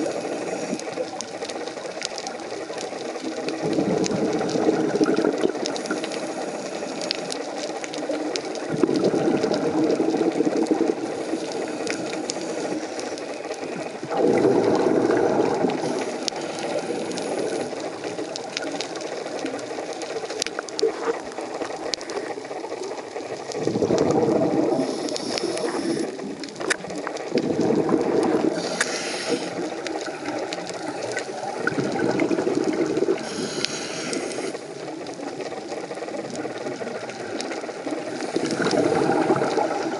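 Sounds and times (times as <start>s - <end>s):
crackle of fine clicks: 0.0s - 39.9s
exhaled bubbles rumbling underwater: 0.0s - 39.9s
regulator hissing inhalations: 24.7s - 26.2s, 28.6s - 29.7s, 33.2s - 34.6s.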